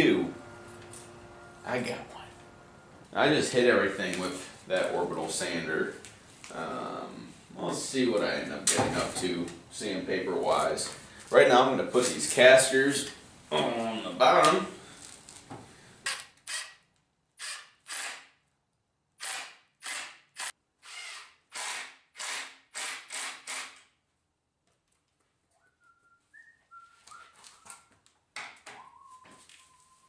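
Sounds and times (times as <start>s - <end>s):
cordless drill driving screws: 16.1s - 16.8s, 17.4s - 18.3s, 19.2s - 23.9s.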